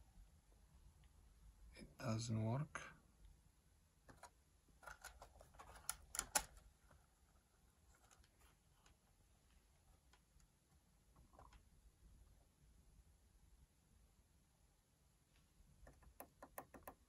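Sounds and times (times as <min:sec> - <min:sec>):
fingers clicking and tapping plastic: 0:15.8 - 0:17.0.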